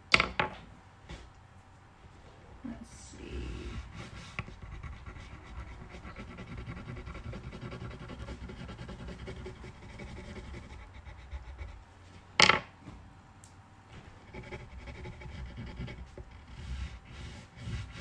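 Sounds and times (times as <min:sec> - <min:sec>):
crayon scribbling on paper: 0:03.5 - 0:11.8, 0:14.2 - 0:18.0.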